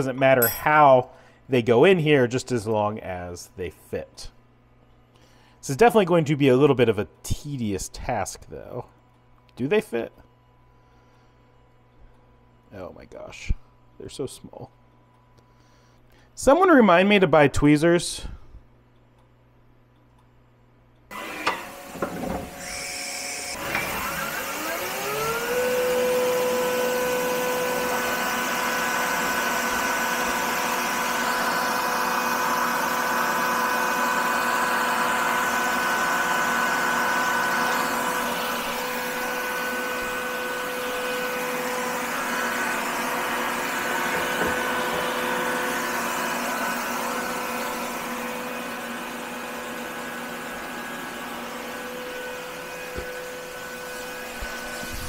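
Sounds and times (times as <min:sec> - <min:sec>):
milling machine spindle whine: 0:21.1 - 0:55.0.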